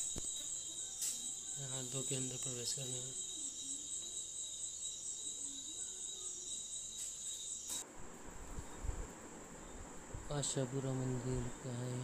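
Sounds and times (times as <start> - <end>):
high-pitched insect trill: 0.0 - 7.8.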